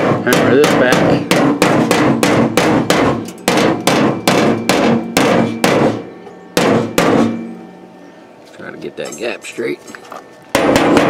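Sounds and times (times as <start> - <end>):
hammer striking sheet metal: 0.0 - 7.5, 10.5 - 11.0.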